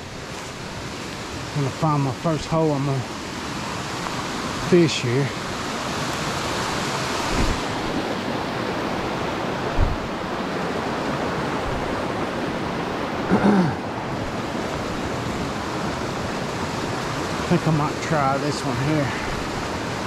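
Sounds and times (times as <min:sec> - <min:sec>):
creek water flowing: 0:00.0 - 0:20.0
short thump: 0:07.3 - 0:08.0, 0:09.8 - 0:10.1.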